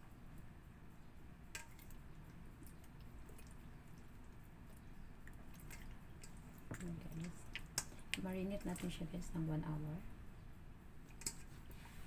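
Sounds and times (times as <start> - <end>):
wet squishing of hands: 1.5 - 9.0.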